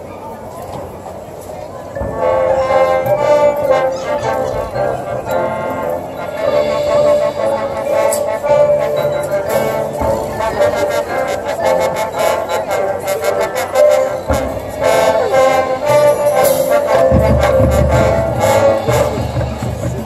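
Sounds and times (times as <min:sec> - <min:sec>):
brass chords: 0:02.0 - 0:20.0
marching drumline: 0:13.8 - 0:20.0.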